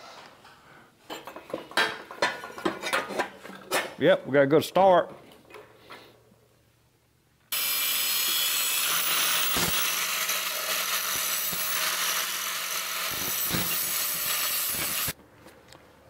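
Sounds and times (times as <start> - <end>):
angle grinder grinding steel: 7.6 - 15.2.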